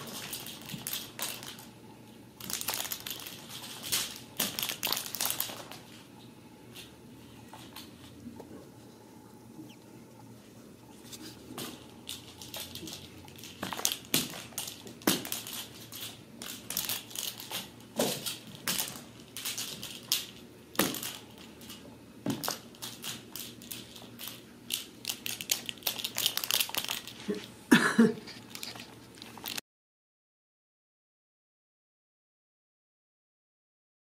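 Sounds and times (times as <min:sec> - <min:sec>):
kittens scuffing on carpet: 0:10.3 - 0:11.6.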